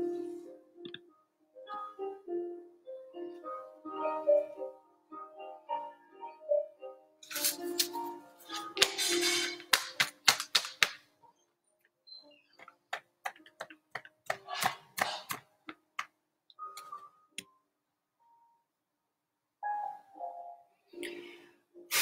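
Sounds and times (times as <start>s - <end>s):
music: 0.0s - 19.0s, 19.6s - 22.0s
sharp clicks and taps: 12.6s - 17.5s.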